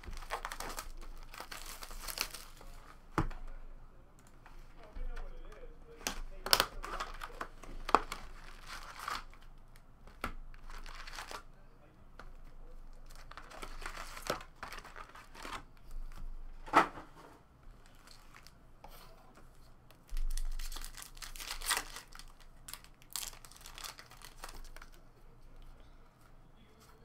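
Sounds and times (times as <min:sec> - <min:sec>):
foil packs tearing and crinkling: 0:00.0 - 0:02.8, 0:06.4 - 0:09.4, 0:10.6 - 0:11.4, 0:13.0 - 0:15.6, 0:20.1 - 0:25.0.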